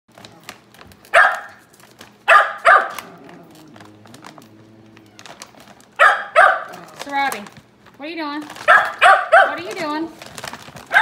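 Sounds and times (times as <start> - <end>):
plastic bag crinkling: 0.1 - 11.0
dog barking: 1.1 - 1.7, 2.3 - 3.1, 6.0 - 6.8, 8.6 - 9.8.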